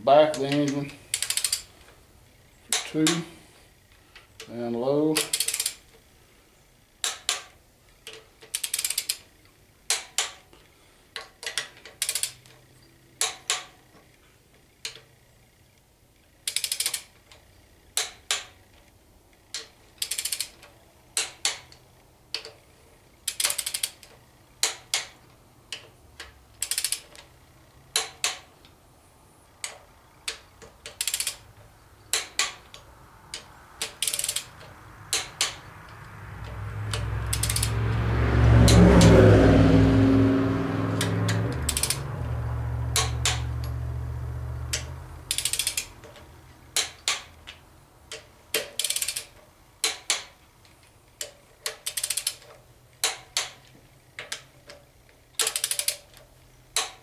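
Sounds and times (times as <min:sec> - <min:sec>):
torque wrench clicking: 0:00.3 - 0:01.7, 0:02.7 - 0:03.2, 0:05.2 - 0:05.9, 0:07.0 - 0:09.3, 0:11.2 - 0:12.6, 0:13.2 - 0:13.7, 0:16.4 - 0:17.4, 0:18.0 - 0:18.6, 0:19.5 - 0:22.6, 0:23.2 - 0:27.3, 0:27.9 - 0:28.5, 0:29.6 - 0:31.4, 0:32.1 - 0:37.8, 0:40.9 - 0:42.1, 0:42.9 - 0:43.8, 0:44.7 - 0:50.4, 0:51.2 - 0:54.8, 0:55.4 - 0:57.0.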